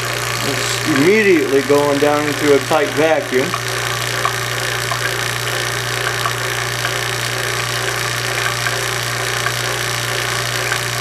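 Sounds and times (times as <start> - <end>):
vacuum pump humming and hissing: 0.0 - 11.0.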